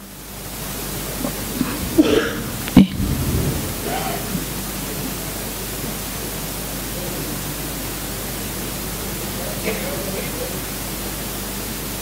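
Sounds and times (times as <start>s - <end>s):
low electrical hum: 0.0s - 12.0s
steady hiss: 0.0s - 12.0s
faint voice: 1.2s - 5.5s.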